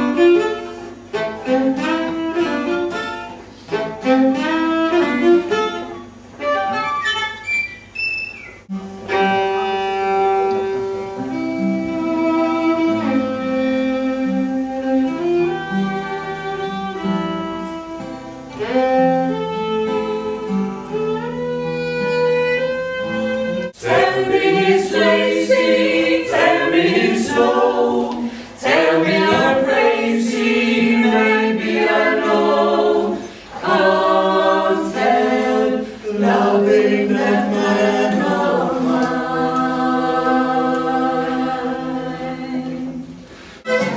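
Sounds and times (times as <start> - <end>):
fiddle: 0.0 - 7.6, 8.7 - 27.5, 43.6 - 43.9
acoustic guitar: 0.0 - 43.9
group of people singing: 23.8 - 43.2.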